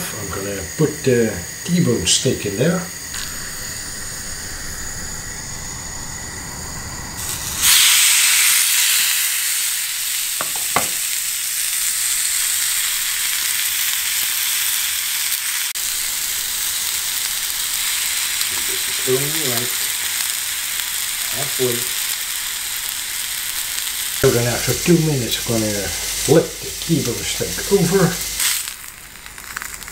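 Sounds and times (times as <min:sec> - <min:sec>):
steak sizzling in grill pan: 0:00.0 - 0:05.2, 0:07.1 - 0:29.9
low hiss: 0:00.0 - 0:14.1, 0:14.8 - 0:29.9.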